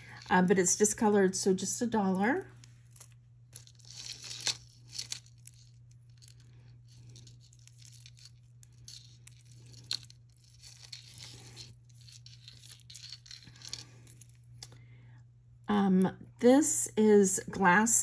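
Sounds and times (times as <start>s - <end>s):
faint low hum: 0.0s - 18.0s
beaded jewelry rustling and clicking: 2.2s - 14.8s.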